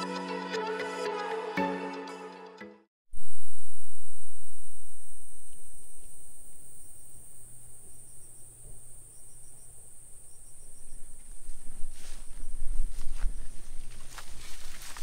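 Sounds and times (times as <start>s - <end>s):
insects buzzing: 3.2s - 15.0s.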